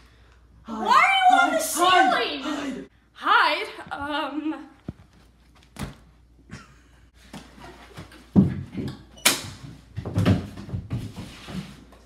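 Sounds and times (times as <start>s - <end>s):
knocks and thumps of people: 7.4s - 11.2s.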